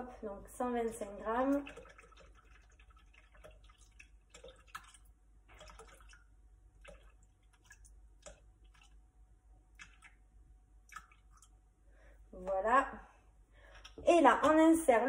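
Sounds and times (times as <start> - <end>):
cream dripping into a bowl: 1.3 - 9.1, 9.7 - 11.6.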